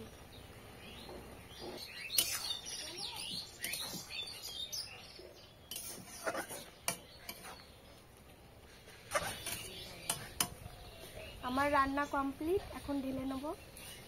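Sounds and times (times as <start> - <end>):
small birds chirping: 0.0 - 14.0
metal spatula scraping a wok: 1.6 - 2.6, 5.6 - 7.6, 8.7 - 10.6.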